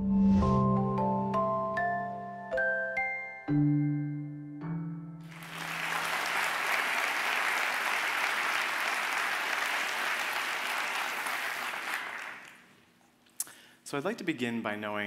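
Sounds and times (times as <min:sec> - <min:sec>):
audience applauding: 0:05.3 - 0:12.8.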